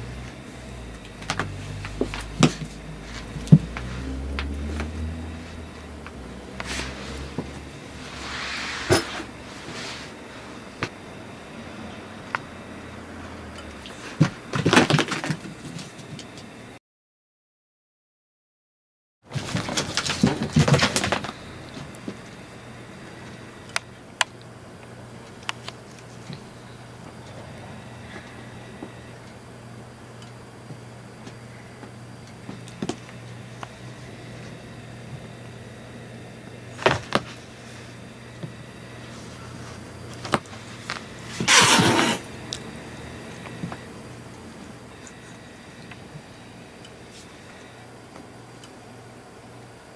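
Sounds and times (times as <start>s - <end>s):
steady low hum: 0.0s - 16.8s, 19.4s - 49.9s
cat hissing: 41.4s - 42.3s.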